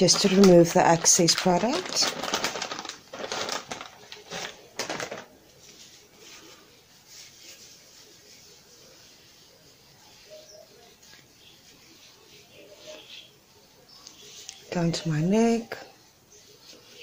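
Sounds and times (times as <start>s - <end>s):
wet wipe packet rustling: 0.0s - 8.7s
wipe rubbing on skin: 3.9s - 17.0s.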